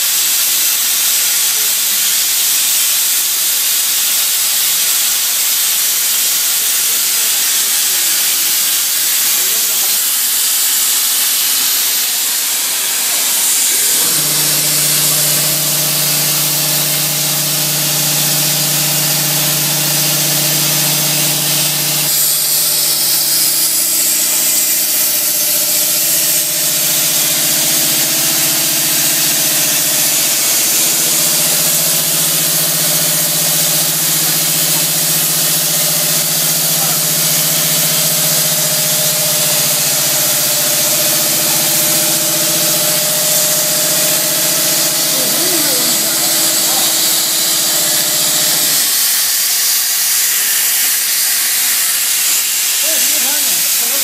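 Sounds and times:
plasma torch hissing: 0.0s - 54.0s
low machine hum: 12.7s - 49.6s.

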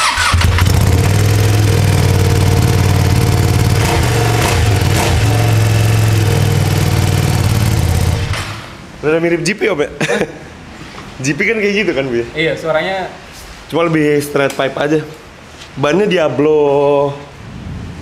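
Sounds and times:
motorcycle engine running: 0.3s - 8.7s.

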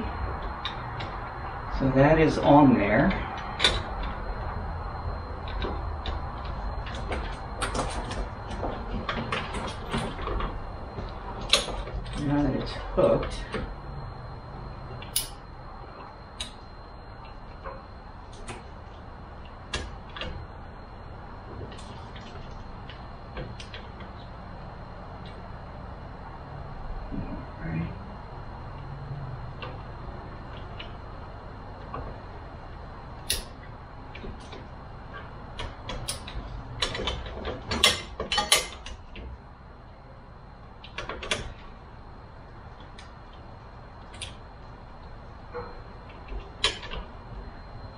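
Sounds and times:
hard parts clicking and knocking: 35.6s - 39.3s.

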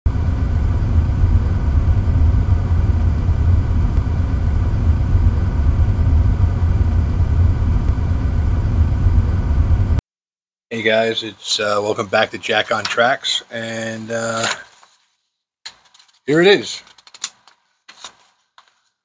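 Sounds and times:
locomotive idling rumble: 0.1s - 10.0s.

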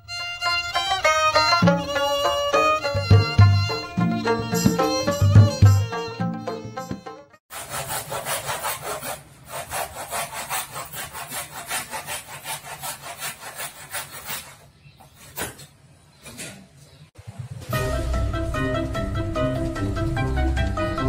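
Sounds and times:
handsaw cutting a board: 7.5s - 14.7s.

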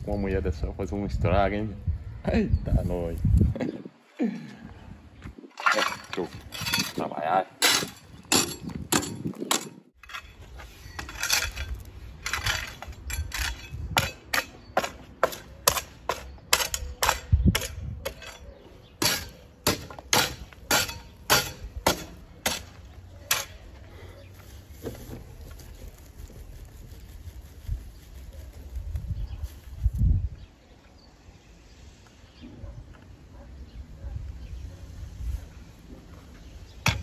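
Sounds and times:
digging tool striking packed dirt: 7.6s - 18.4s.

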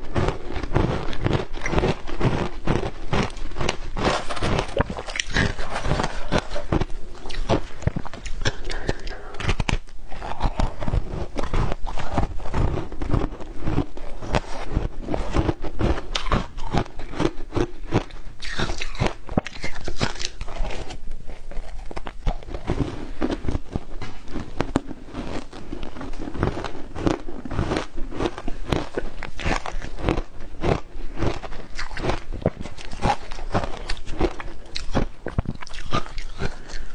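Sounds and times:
ice crunching while chewed: 0.0s - 36.9s.

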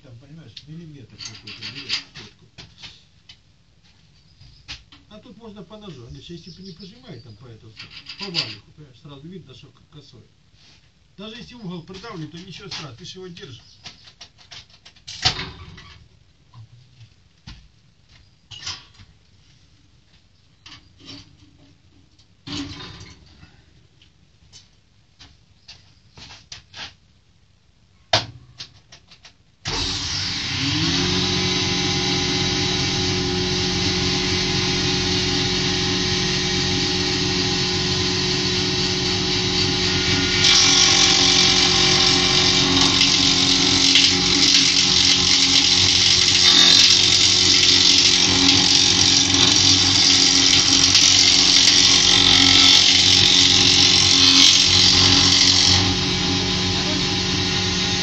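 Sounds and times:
jointer motor whining and humming: 29.7s - 58.0s
board planing hiss: 39.9s - 58.0s.

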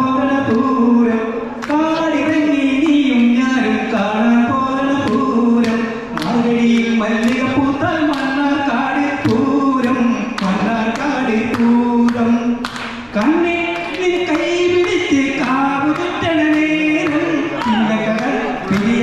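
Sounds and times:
man singing unaccompanied: 0.0s - 19.0s
hand claps: 0.4s - 0.9s, 1.6s - 3.4s, 4.0s - 19.0s.

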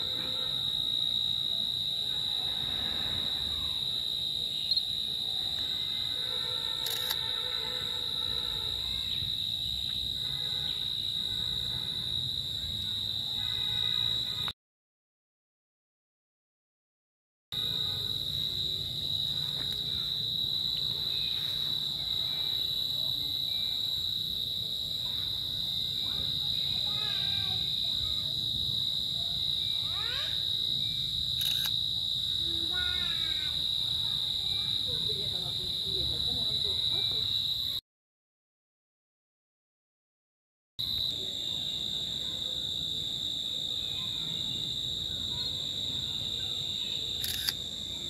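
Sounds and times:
insects droning: 0.0s - 14.5s, 17.6s - 37.8s, 40.8s - 48.0s.

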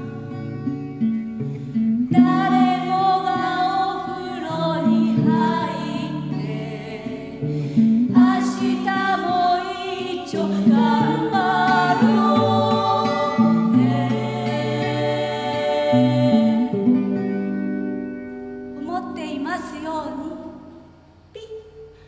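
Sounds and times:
women singing together: 2.1s - 16.9s.

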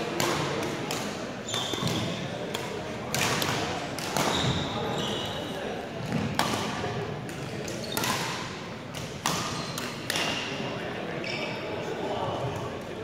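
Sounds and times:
rackets striking shuttlecock: 0.0s - 4.7s, 6.1s - 10.5s
gym chatter: 0.0s - 13.0s.

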